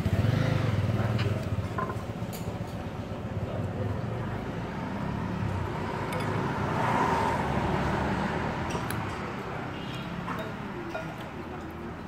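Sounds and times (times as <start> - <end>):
vehicle passing by: 0.0 - 1.6, 3.8 - 10.4.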